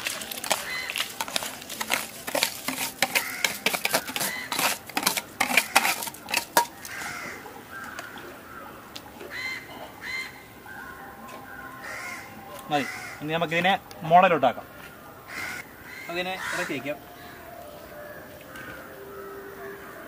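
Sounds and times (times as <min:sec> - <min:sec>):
metal utensils clinking on pot: 0:00.0 - 0:07.1
crows cawing: 0:00.4 - 0:01.2, 0:02.7 - 0:04.8, 0:05.4 - 0:13.4, 0:14.6 - 0:20.0.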